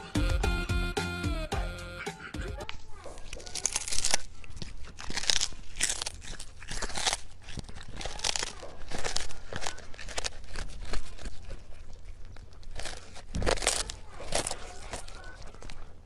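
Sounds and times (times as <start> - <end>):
cat crunching fish: 2.0 - 16.0.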